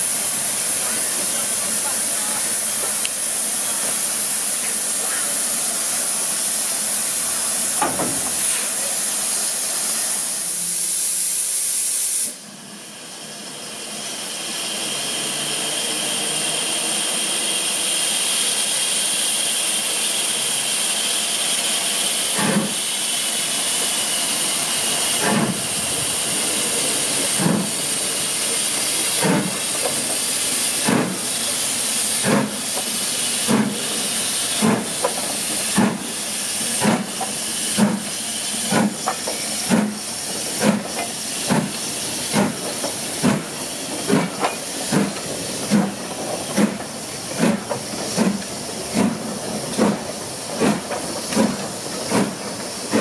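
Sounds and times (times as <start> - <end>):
steam hissing: 0.0 - 53.0
steam locomotive exhaust beats: 14.7 - 53.0.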